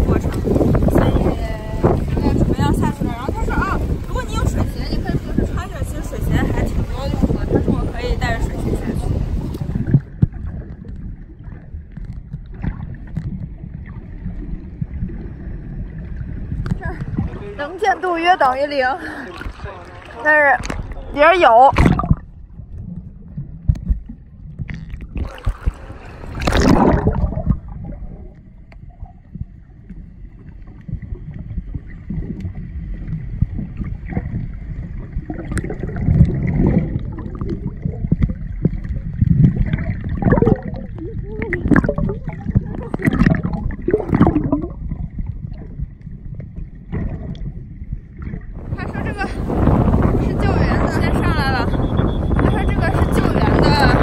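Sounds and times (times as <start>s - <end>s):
underwater rumble of moving water: 0.0s - 54.0s
low thumps: 21.7s - 25.8s, 26.4s - 30.0s, 30.7s - 54.0s.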